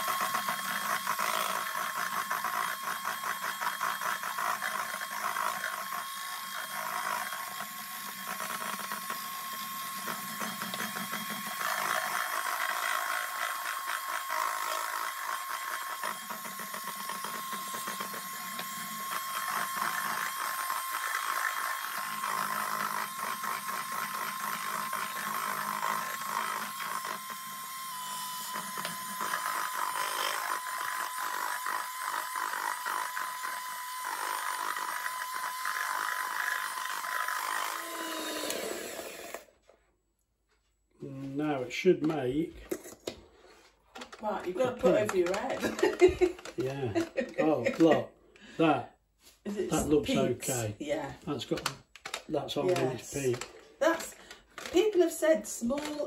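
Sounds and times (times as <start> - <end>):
electric mixer motor whine: 0.0 - 39.8, 41.4 - 56.0.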